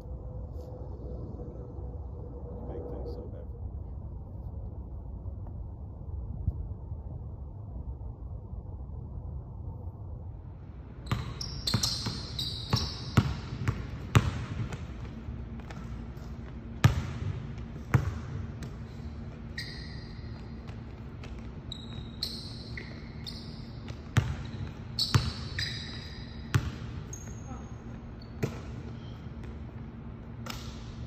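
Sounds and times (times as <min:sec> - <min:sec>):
low wind rumble: 0:00.0 - 0:11.1
sneaker squeaks: 0:11.0 - 0:14.3, 0:17.9 - 0:29.7
basketball bouncing on hardwood floor: 0:11.1 - 0:18.8, 0:23.8 - 0:27.4.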